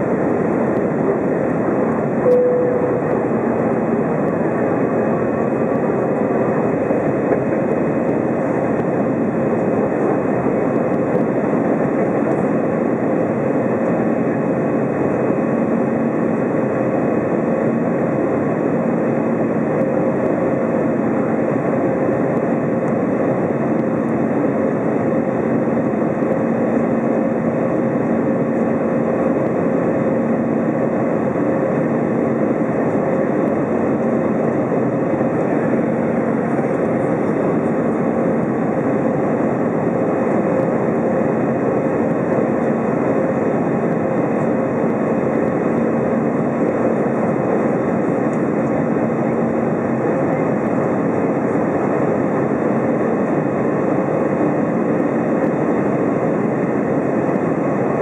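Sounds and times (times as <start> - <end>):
faint steady hum: 0.0 - 6.6
jet engine and airflow rush: 0.0 - 58.0.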